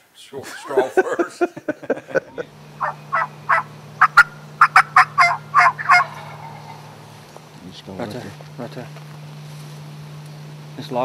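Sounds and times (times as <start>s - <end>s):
steady low hum: 0.3s - 11.0s
turkey call notes: 2.5s - 10.6s.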